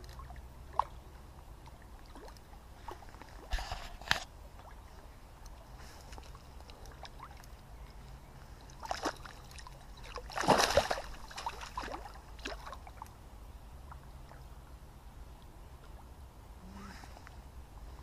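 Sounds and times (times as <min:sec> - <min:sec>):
fish splashing in water: 0:08.7 - 0:13.0.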